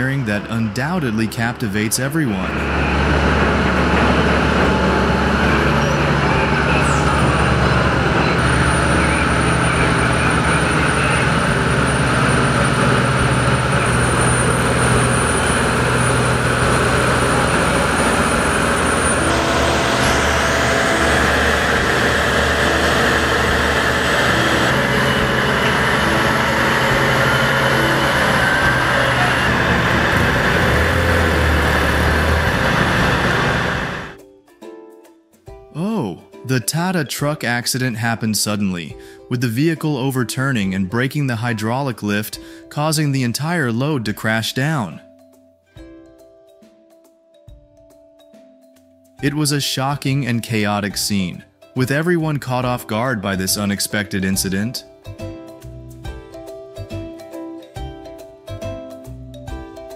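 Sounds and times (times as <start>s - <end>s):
truck engines droning: 0.0s - 34.2s
traffic noise: 2.2s - 34.2s.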